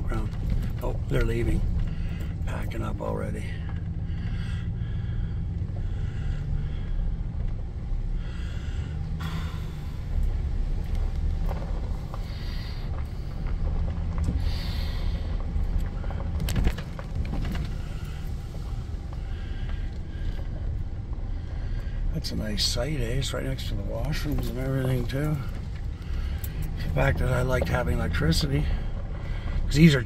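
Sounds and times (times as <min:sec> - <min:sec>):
truck engine and road rumble: 0:00.0 - 0:30.0
tyres on gravel: 0:00.0 - 0:30.0.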